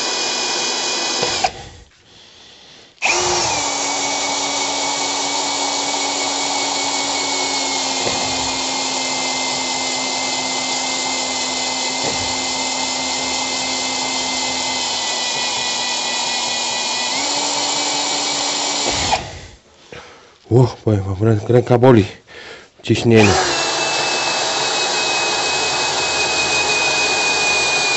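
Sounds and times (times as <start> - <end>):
electric drill boring into steel: 0.0 - 1.8, 3.0 - 19.6, 23.2 - 27.9.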